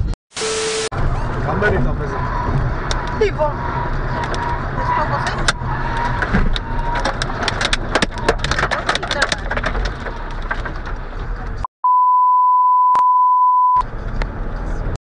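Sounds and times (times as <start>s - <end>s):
car road and cabin noise: 0.0s - 15.0s
high-pitched censor beep: 11.8s - 13.8s.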